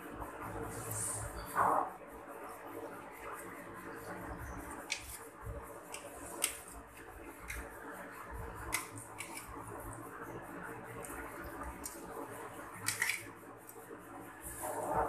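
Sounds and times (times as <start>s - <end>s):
low steady hum: 0.0s - 15.0s
knife clicking and scraping on metal: 8.6s - 9.6s, 12.8s - 13.3s.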